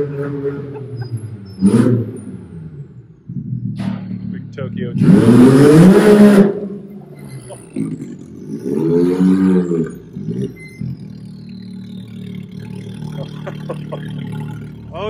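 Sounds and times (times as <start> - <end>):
engine revving: 0.0 - 15.0
faint high whine: 9.7 - 15.0.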